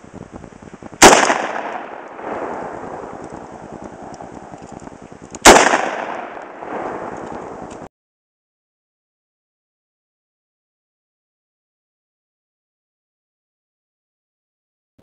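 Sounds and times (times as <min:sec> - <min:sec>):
gunshot echo off hills: 0:01.0 - 0:04.1, 0:05.4 - 0:07.8
rifle shots: 0:01.0 - 0:04.7, 0:05.4 - 0:07.9.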